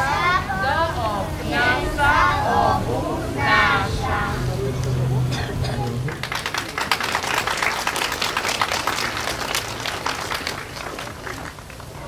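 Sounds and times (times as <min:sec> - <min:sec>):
crowd applause: 0:05.8 - 0:12.0.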